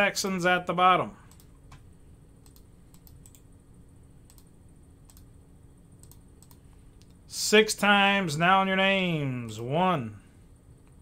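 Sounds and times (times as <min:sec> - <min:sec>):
keyboard and mouse clicks: 0:02.4 - 0:03.5, 0:04.3 - 0:05.3, 0:06.0 - 0:07.2.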